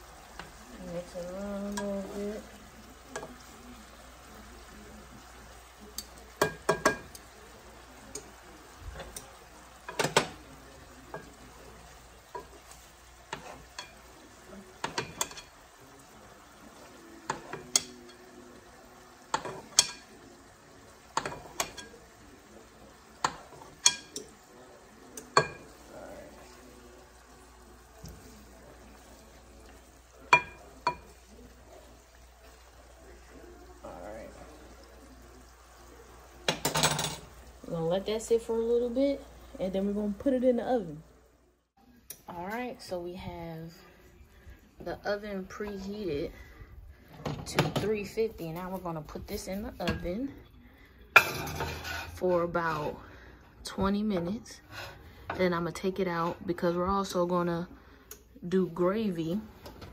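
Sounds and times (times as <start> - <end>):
faint sizzle of frying: 0.0 - 59.9
metal utensil scraping a pan: 12.3 - 14.2, 51.2 - 53.0.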